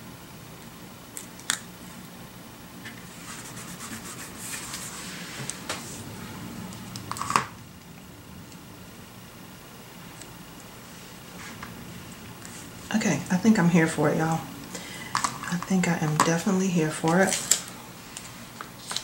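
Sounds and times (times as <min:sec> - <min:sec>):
paper rustling: 0:17.0 - 0:19.0.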